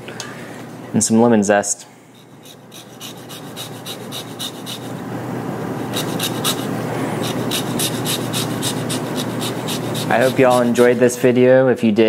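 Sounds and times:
zester scraping lemon: 2.2s - 5.0s, 5.8s - 11.2s.

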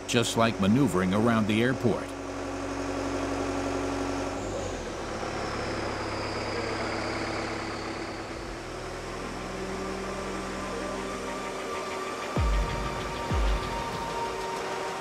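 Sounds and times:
tractor engine running: 0.0s - 15.0s
faint high whine: 4.4s - 15.0s.

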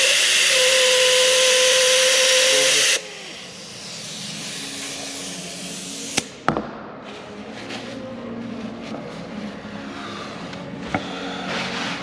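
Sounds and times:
air hissing from valve: 0.0s - 6.3s.

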